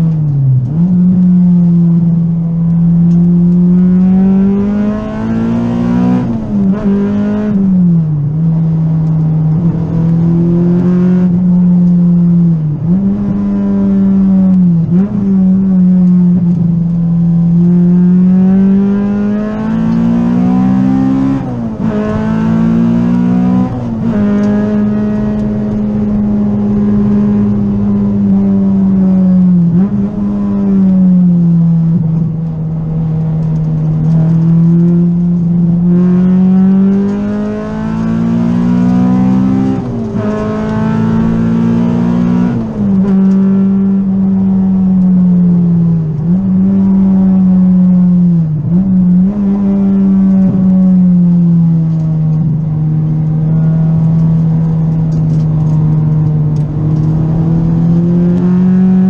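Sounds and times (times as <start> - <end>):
car engine at high revs: 0.0 - 59.0.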